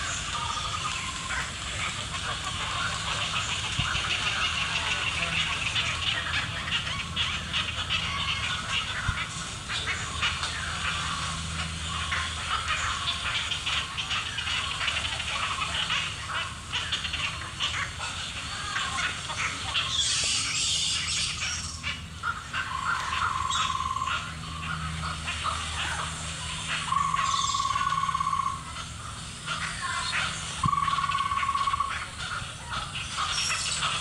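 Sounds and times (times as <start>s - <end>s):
birds chirping: 0.0s - 34.0s
high hissy chatter: 0.0s - 34.0s.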